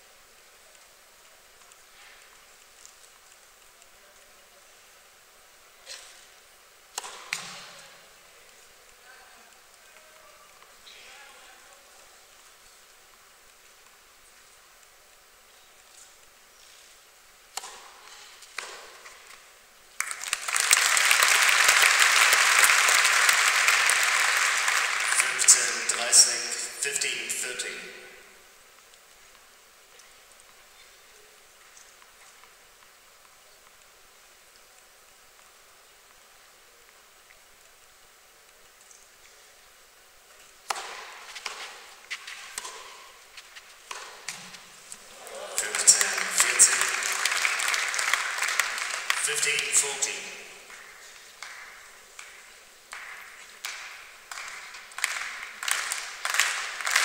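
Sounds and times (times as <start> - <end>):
crowd applauding: 20.0 - 27.7, 45.0 - 57.0
tennis ball strikes: 40.7 - 41.7, 43.9 - 44.4.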